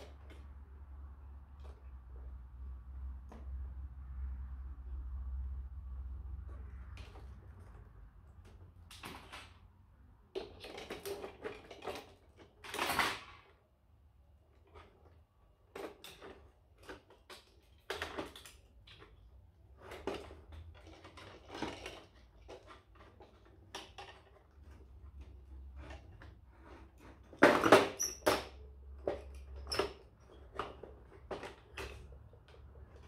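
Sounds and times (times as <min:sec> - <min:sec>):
plastic and metal parts clattering: 0:06.4 - 0:13.7, 0:14.4 - 0:33.0.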